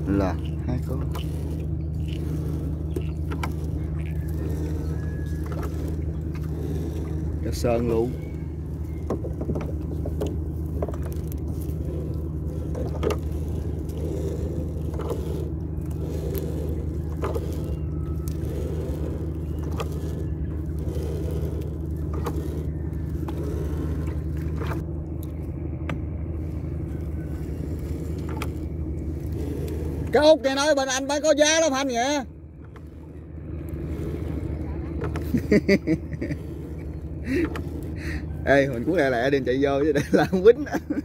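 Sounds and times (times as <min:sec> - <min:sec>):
gill net clicks and scrapes: 0:00.0 - 0:25.4, 0:26.4 - 0:32.0
boat engine humming: 0:00.0 - 0:41.0.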